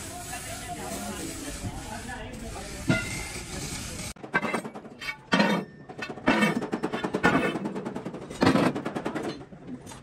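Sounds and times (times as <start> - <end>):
fire hissing: 0.0 - 4.2.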